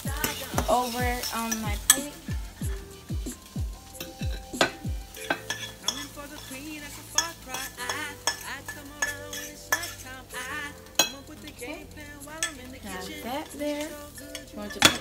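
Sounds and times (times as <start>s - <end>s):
utensil clinking on plate: 5.2s - 6.1s.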